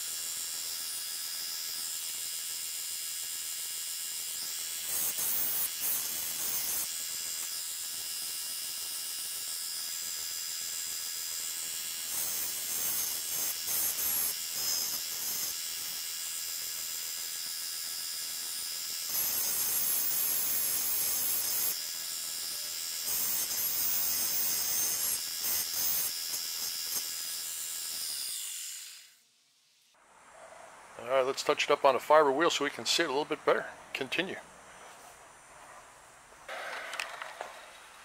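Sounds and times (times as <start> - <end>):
steel grinding on belt: 4.4 - 7.7, 11.6 - 16.0, 17.8 - 29.2.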